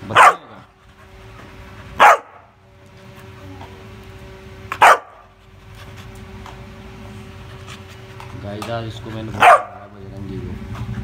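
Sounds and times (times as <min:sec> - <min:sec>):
puppy barking: 0:00.0 - 0:00.6, 0:02.0 - 0:02.5, 0:04.7 - 0:05.3, 0:09.3 - 0:10.0.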